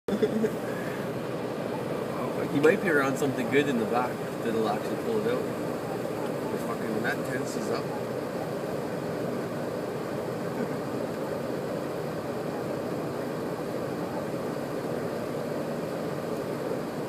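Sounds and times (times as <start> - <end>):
car engine idling: 0.1 - 17.0.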